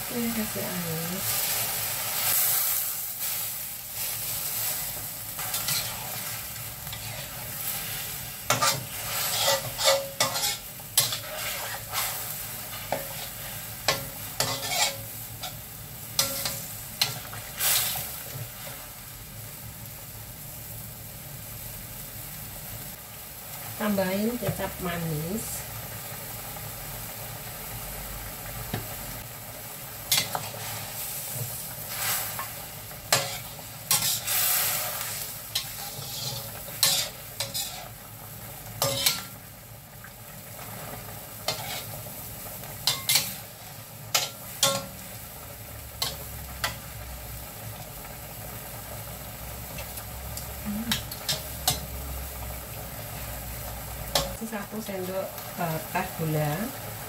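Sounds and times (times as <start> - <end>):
food sizzling: 0.0 - 57.0
metal spatula scraping wok: 4.6 - 15.6, 16.2 - 18.1, 30.1 - 38.0, 38.8 - 39.4, 41.4 - 42.0, 42.8 - 45.0.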